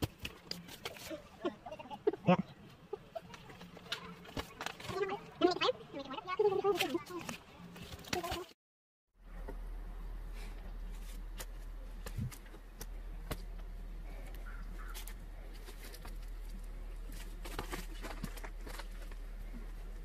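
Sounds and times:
steady low hum: 0:09.2 - 0:20.0.

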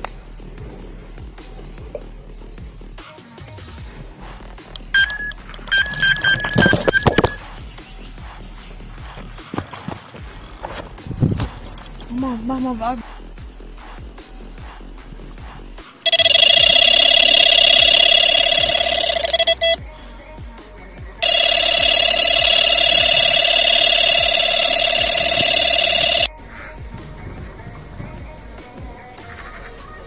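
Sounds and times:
electronic bite alarm tone: 0:04.8 - 0:07.4, 0:16.1 - 0:19.8, 0:21.2 - 0:26.3.

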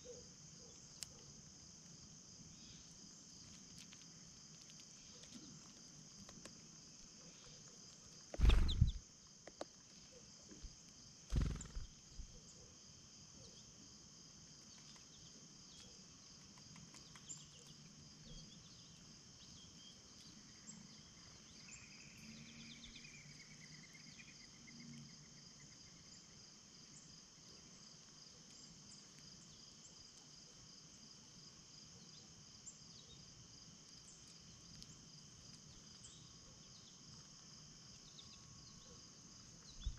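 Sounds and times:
insects chirping: 0:00.0 - 0:39.9
faint bird twitter: 0:08.4 - 0:09.0, 0:11.3 - 0:12.8, 0:16.9 - 0:26.3, 0:39.6 - 0:39.9
loud thumps: 0:08.4 - 0:09.0.

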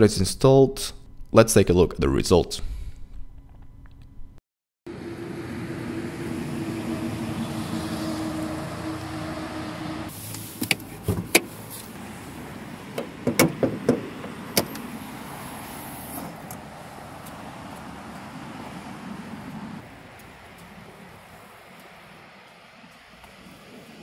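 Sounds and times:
car bonnet clicks and knocks: 0:12.9 - 0:14.9.

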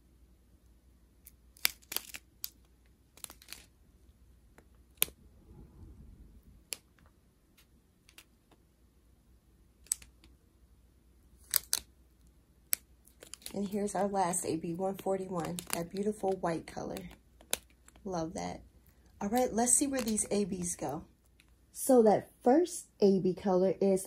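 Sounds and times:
plastic bags crinkling: 0:01.6 - 0:03.8, 0:13.0 - 0:18.1, 0:19.1 - 0:20.9.

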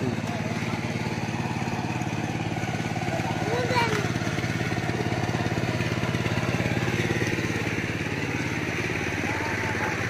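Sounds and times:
small engine running: 0:00.0 - 0:10.0.

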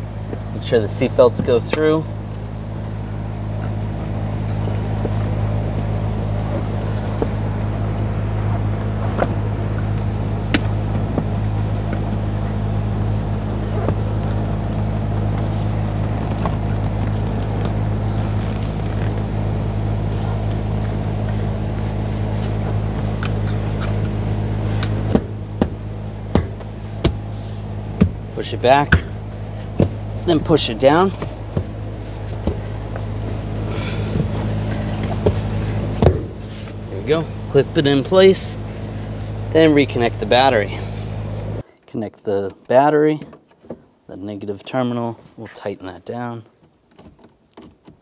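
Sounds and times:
steady low hum: 0:00.0 - 0:48.0
clicks and knocks of seat handling: 0:08.7 - 0:12.2, 0:22.6 - 0:36.8.

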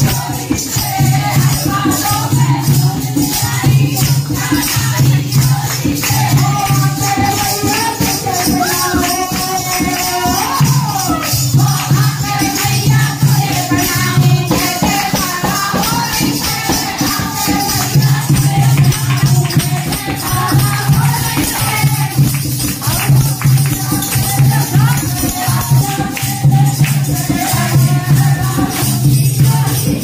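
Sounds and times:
dholak drum beating: 0:00.0 - 0:30.0
jingling percussion: 0:00.0 - 0:30.0
women singing in a group: 0:00.0 - 0:30.0
hand-clapping: 0:13.8 - 0:30.0.

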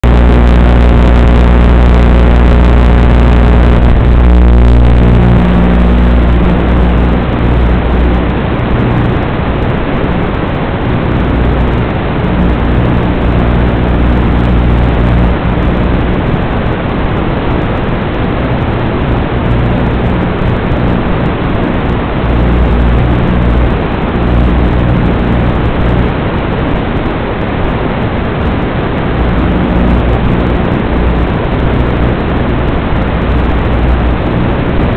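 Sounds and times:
drone motors whining: 0:00.0 - 0:09.2
rushing noise of props and wind: 0:03.9 - 0:34.9.

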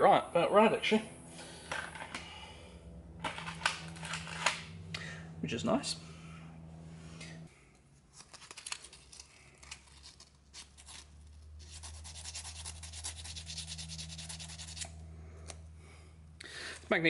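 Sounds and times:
low steady hum: 0:00.0 - 0:17.0
hand rubbing abrasive: 0:09.5 - 0:15.6.

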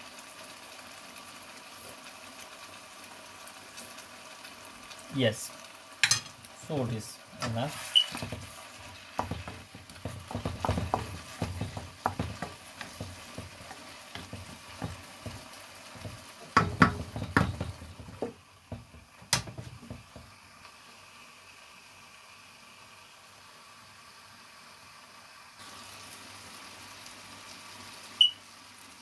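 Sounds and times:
food sizzling: 0:00.0 - 0:29.0
glass lid clink: 0:06.0 - 0:06.3
wooden spatula scraping a wok: 0:07.4 - 0:20.2.

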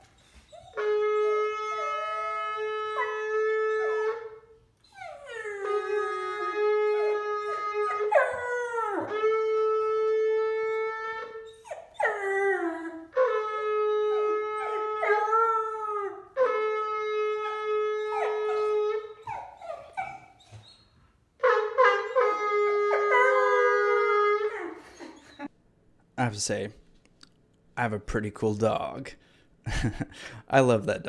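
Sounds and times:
puppy howling: 0:00.5 - 0:20.8, 0:21.6 - 0:25.5
shofar blasts: 0:00.6 - 0:04.4, 0:05.8 - 0:11.5, 0:13.1 - 0:19.2, 0:21.4 - 0:24.5.

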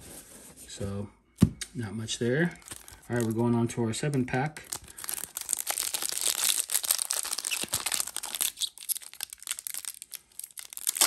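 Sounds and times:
foil wrapper crinkling: 0:02.6 - 0:11.0.

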